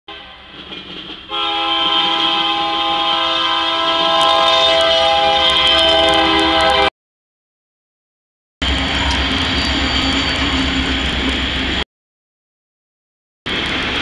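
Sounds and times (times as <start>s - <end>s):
train rumble: 0.1s - 6.9s, 8.6s - 11.8s, 13.5s - 14.0s
locomotive air horn blast: 1.3s - 6.9s.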